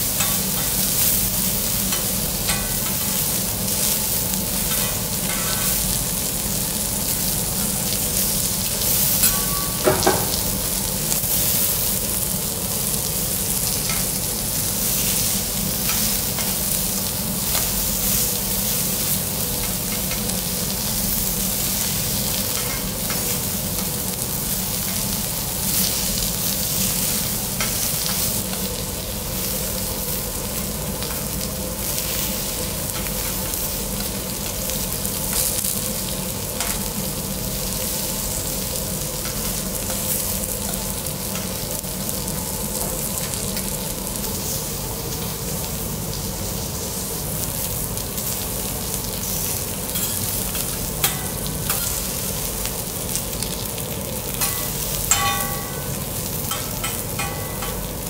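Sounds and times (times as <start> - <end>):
seafood sizzling on a griddle: 0.0 - 58.0
ringing metallic clinks: 54.4 - 57.9.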